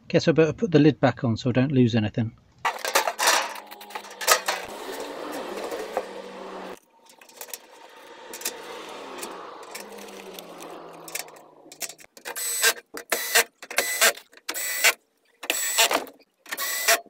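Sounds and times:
handling bolts and lid: 2.7 - 6.4, 7.0 - 8.6, 9.2 - 14.6
cordless drill bursts: 12.3 - 17.0.

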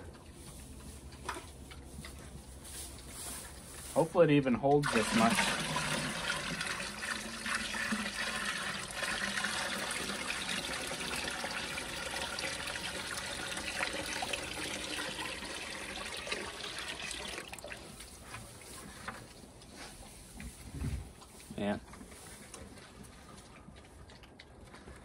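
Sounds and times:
water pouring into metal can: 4.8 - 18.2.

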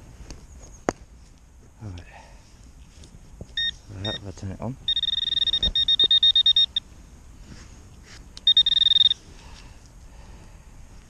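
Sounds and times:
metal detector pinpointer beeping: 3.6 - 6.9, 8.4 - 9.2.

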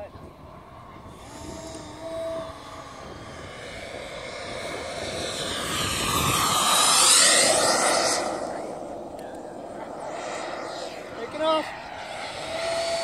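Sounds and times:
aircraft engine low pass: 0.0 - 13.0
high whine sliding down: 0.7 - 13.0.

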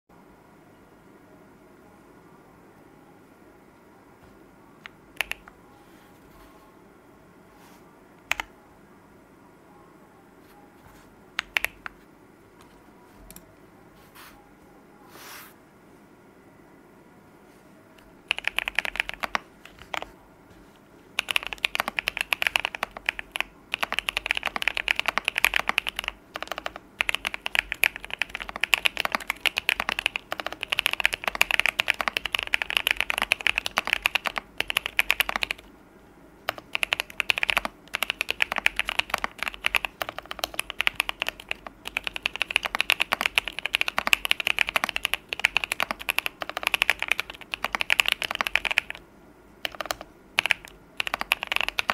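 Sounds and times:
mechanical keyboard typing: 5.1 - 5.5, 8.2 - 8.5, 11.4 - 12.0, 18.3 - 20.1, 21.2 - 35.7, 36.5 - 49.0, 49.6 - 51.9.

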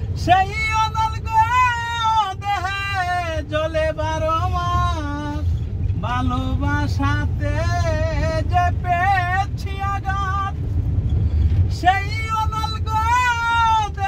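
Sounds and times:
van engine and tyres rumbling: 0.0 - 14.0.

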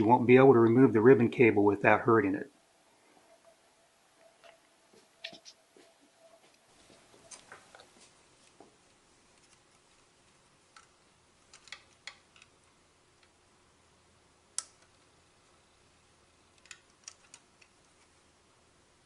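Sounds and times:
small plastic clicks: 10.7 - 12.6, 16.5 - 18.1.

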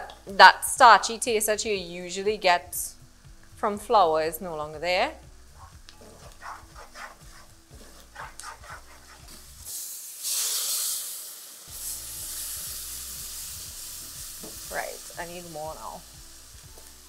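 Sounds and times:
roux sizzling: 3.8 - 17.0
spoon stirring: 5.6 - 9.5
stock poured into hot pan hissing: 9.3 - 17.0.

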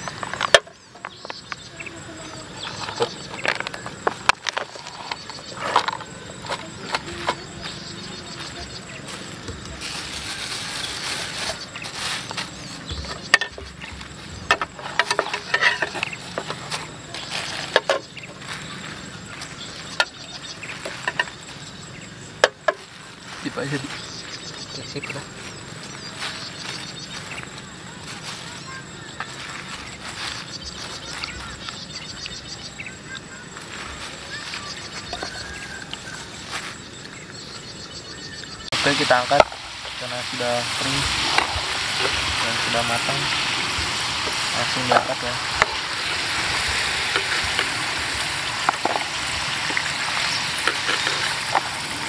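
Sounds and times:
food sizzling in hot oil: 7.6 - 32.6, 38.7 - 52.0
oil sizzling in frying pan: 38.7 - 52.0.

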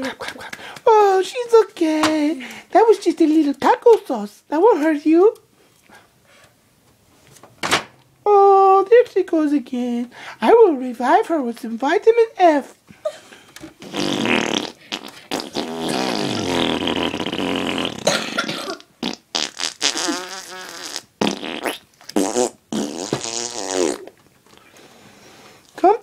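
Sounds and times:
fart noises: 13.7 - 24.2.

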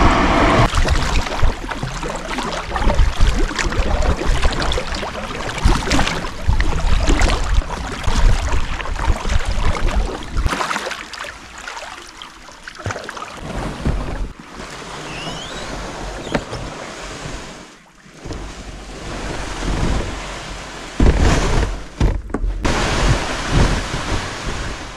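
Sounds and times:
wind rumbling on microphone: 0.0 - 10.5, 18.2 - 24.9
paddle splashing in water: 0.6 - 24.9.

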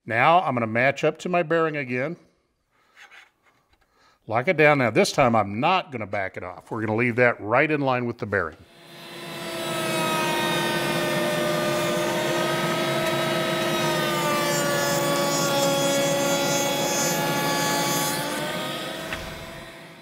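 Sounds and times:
router cutting wood: 8.6 - 20.0.

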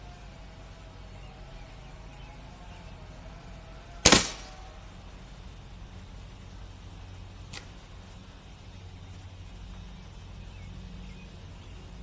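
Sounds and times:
steady low rumble: 0.0 - 12.0
air rifle shot: 4.0 - 4.5.

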